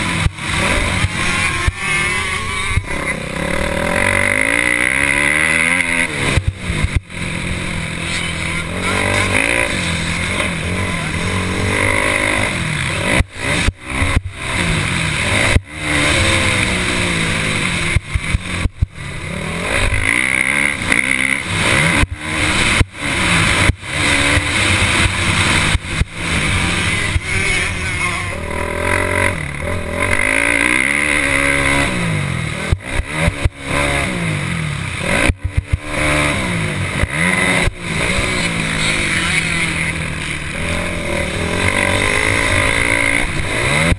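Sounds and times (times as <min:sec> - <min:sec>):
motocross bike engine revving: 0:00.0 - 0:43.9.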